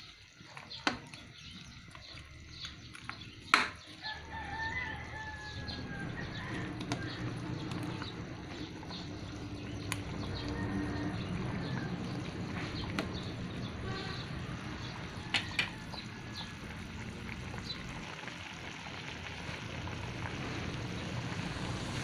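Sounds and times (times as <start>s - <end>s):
sauce bubbling in metal pot: 0.0s - 22.0s.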